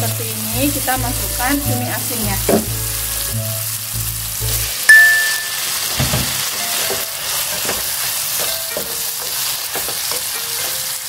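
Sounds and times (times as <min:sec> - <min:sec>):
squid sizzling in hot oil: 0:00.0 - 0:11.0
sharp ringing clink: 0:04.9 - 0:05.7.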